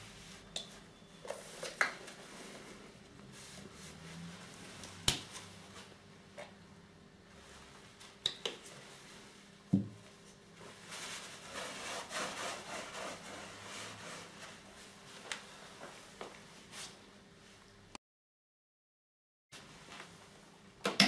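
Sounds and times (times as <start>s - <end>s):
cloth rubbing carpet: 10.7s - 16.1s.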